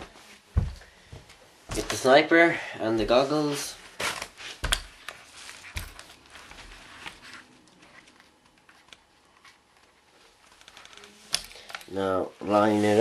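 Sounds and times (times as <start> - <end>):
rustling and small clicks: 4.1 - 12.0.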